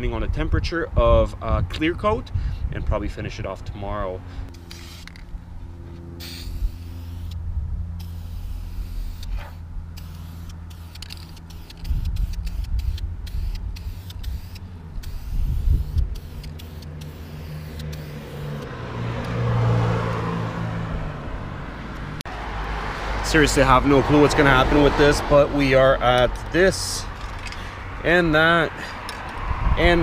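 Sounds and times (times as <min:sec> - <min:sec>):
low engine-like rumble: 0:00.9 - 0:19.4
aerosol spray can hissing: 0:04.6 - 0:05.2, 0:06.2 - 0:07.4, 0:08.0 - 0:18.7.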